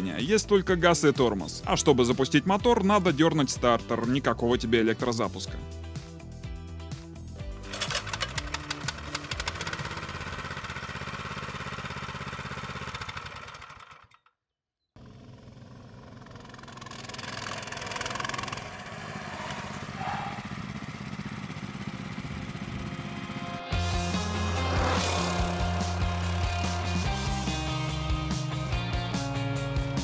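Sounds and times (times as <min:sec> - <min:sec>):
recoil starter pull: 0:07.6 - 0:14.4, 0:16.1 - 0:18.8
mini-bike engine running: 0:07.7 - 0:14.2, 0:15.0 - 0:27.2.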